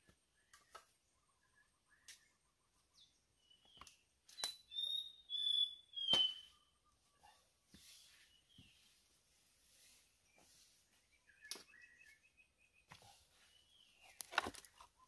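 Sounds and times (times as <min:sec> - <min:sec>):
whistled bird call: 0:03.6 - 0:06.8.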